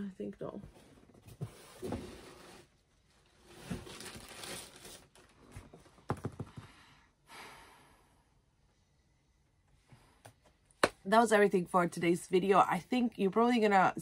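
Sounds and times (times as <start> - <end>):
packaging rustling and crinkling: 3.1 - 5.9.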